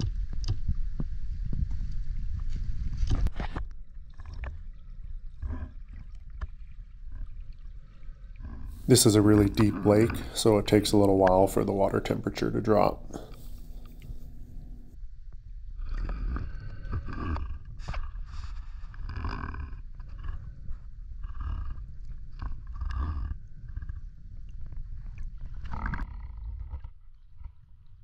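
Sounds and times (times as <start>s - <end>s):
water splashing and gurgling: 1.8s - 14.8s
muffled rushing water: 8.8s - 14.8s.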